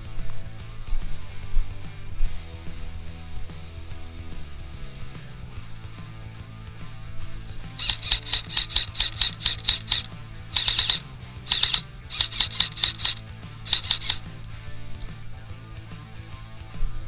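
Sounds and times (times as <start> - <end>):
airsoft rifle shots: 7.5 - 14.4.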